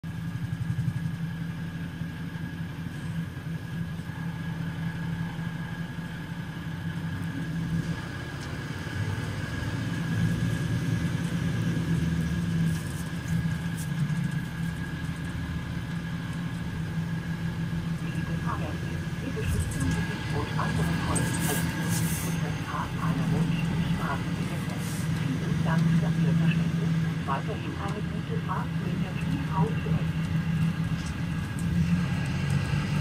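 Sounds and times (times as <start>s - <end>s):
bus diesel engine idling: 0.0s - 33.0s.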